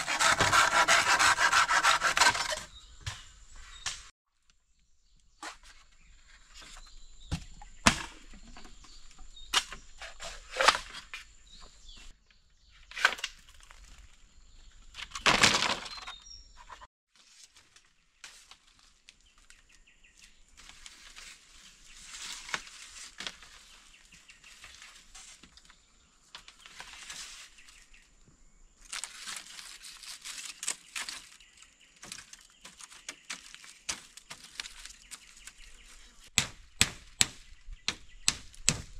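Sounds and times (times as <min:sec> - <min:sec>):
rustling and scraping: 0:20.2 - 0:28.1
bamboo poles knocking: 0:36.4 - 0:38.9.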